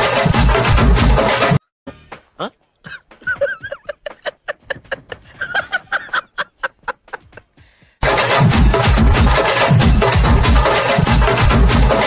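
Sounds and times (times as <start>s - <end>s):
loud music with heavy drum beat: 0.0s - 1.6s, 8.0s - 12.0s
man laughing: 2.4s - 7.6s.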